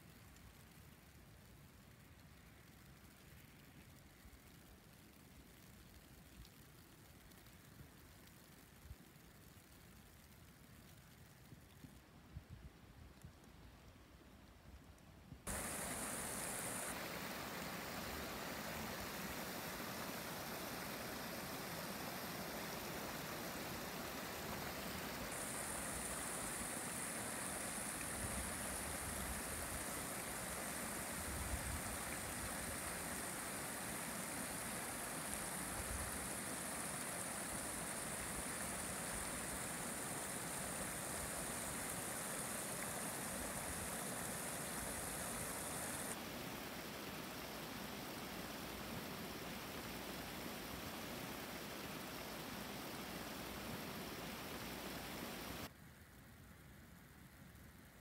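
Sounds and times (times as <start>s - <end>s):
stream running over rocks: 15.5s - 55.7s.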